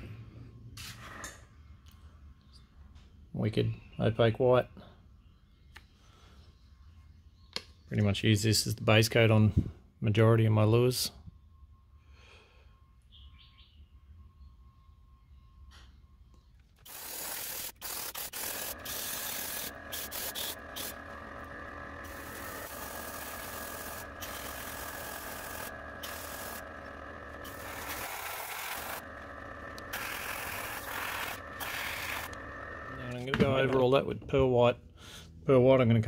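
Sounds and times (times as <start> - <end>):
steady hum: 16.6 - 34.0.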